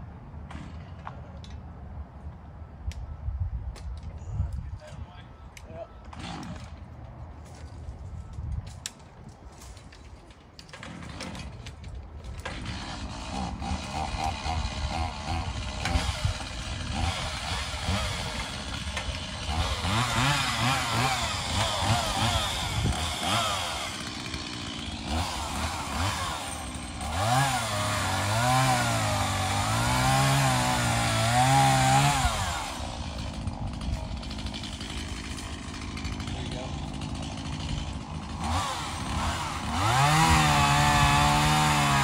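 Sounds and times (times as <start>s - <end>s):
chainsaw revving cutting wood: 12.3s - 42.0s.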